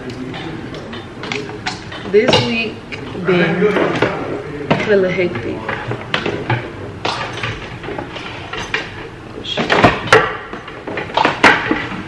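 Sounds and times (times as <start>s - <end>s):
household items knocking and clacking: 5.7s - 12.0s.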